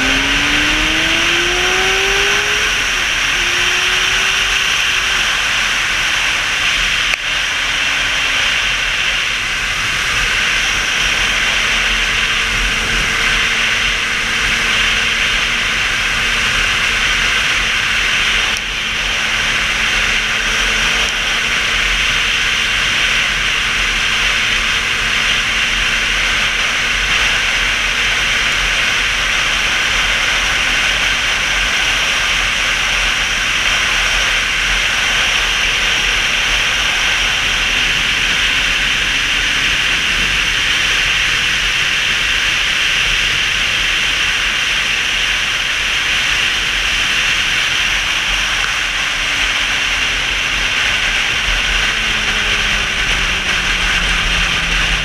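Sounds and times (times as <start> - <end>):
faint motorcycle engine drone: 0.0 - 55.0
wind rushing over microphone: 44.9 - 55.0.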